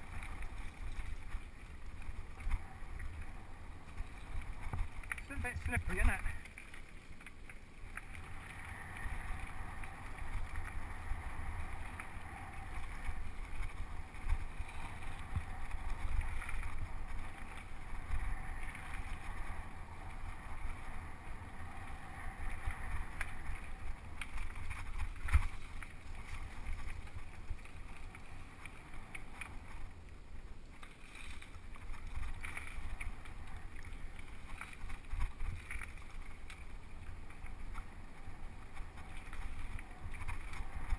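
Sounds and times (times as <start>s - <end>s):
bike tyre rumble: 0.0s - 40.9s.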